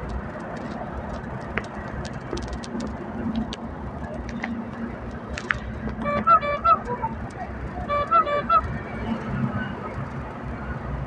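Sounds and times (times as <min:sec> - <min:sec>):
vehicle engine and road rumble: 0:00.0 - 0:11.0.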